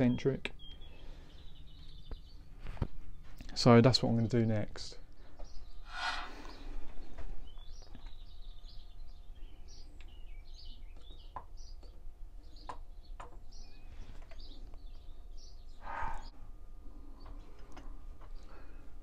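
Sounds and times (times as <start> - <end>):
small bird chirping: 0.0 - 3.6, 5.3 - 16.4.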